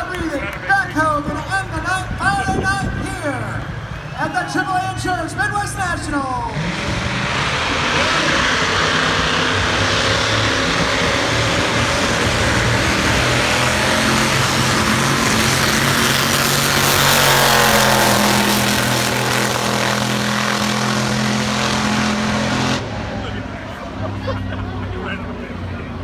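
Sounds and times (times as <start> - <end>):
backhoe engine racing past: 6.6 - 23.8.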